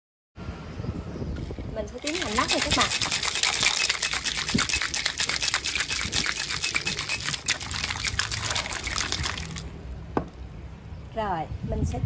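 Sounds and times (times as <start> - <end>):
ice rattling in cocktail shaker: 2.0 - 9.7.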